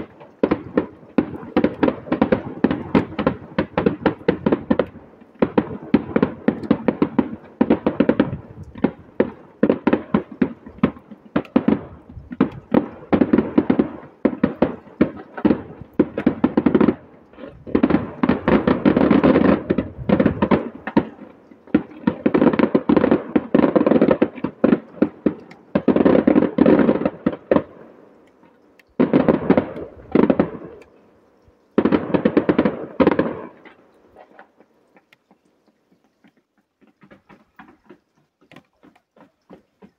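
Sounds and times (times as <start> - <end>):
fireworks bangs and crackles: 0.0 - 39.9.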